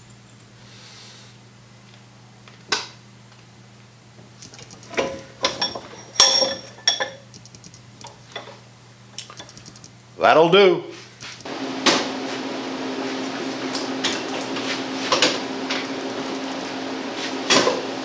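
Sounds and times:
steady low hum: 0.0s - 17.9s
ringing metal clinks and clanks: 4.9s - 7.3s
sharp click: 7.3s - 7.8s, 9.2s - 10.0s.

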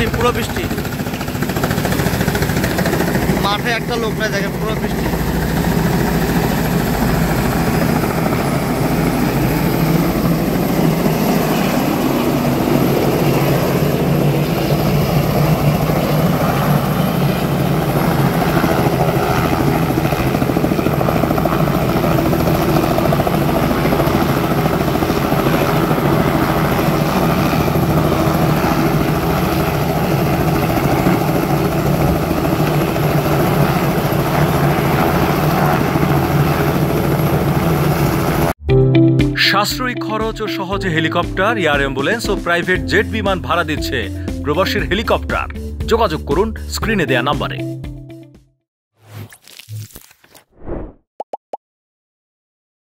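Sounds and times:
helicopter engine and rotor drone: 0.0s - 38.6s.

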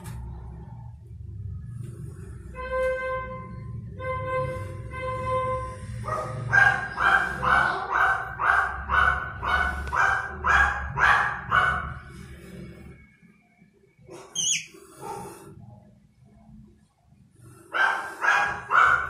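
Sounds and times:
dog barking: 6.0s - 12.2s, 17.7s - 19.0s
high-pitched squeak: 14.2s - 14.8s.

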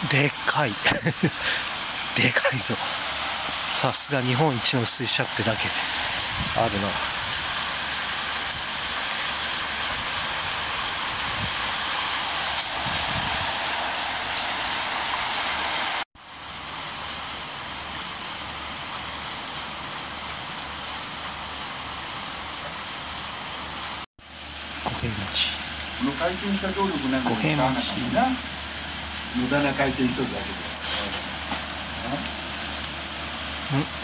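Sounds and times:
water rushing at waterwheel: 0.0s - 34.0s.

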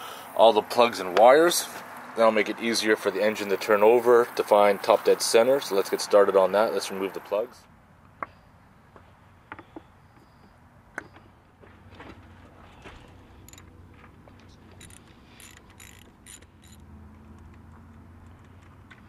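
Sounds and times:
socket ratchet clicking: 14.8s - 16.9s.

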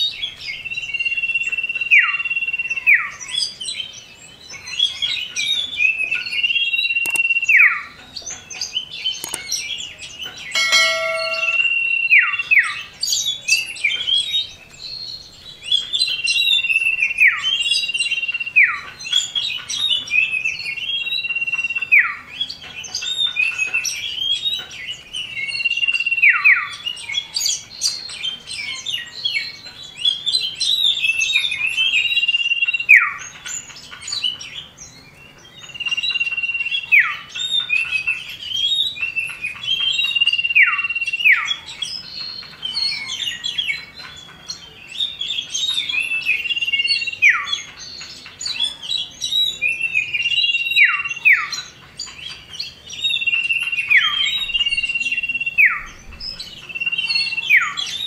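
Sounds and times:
quick chattering bird chirps: 7.0s - 7.3s.

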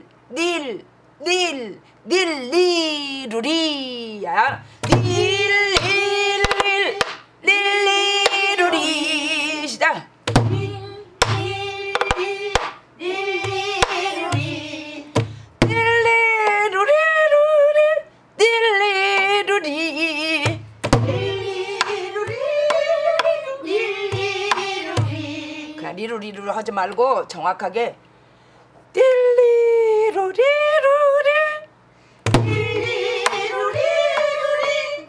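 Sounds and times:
deep drum thumps: 4.8s - 6.7s, 10.3s - 12.7s, 13.4s - 16.1s, 20.5s - 22.4s, 24.1s - 25.4s, 32.3s - 33.0s
woman singing with vibrato: 4.8s - 26.2s, 29.0s - 31.7s, 32.4s - 35.0s
drum stick clicks: 11.2s - 12.8s.

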